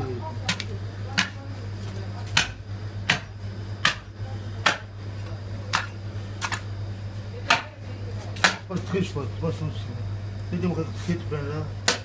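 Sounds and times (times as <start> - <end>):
low steady hum: 0.0 - 12.0
axe chopping meat and bone: 0.5 - 1.4, 2.3 - 4.9, 5.7 - 6.6, 7.5 - 7.7, 8.4 - 8.7.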